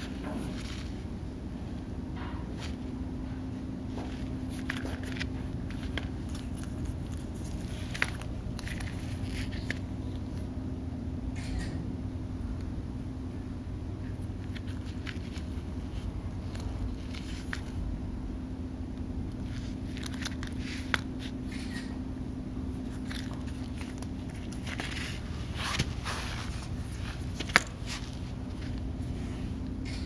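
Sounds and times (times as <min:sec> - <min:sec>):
steady low hum: 0:00.0 - 0:30.0
sandal rustling and clicking: 0:03.8 - 0:10.5, 0:14.0 - 0:17.9, 0:18.9 - 0:22.0, 0:22.7 - 0:30.0.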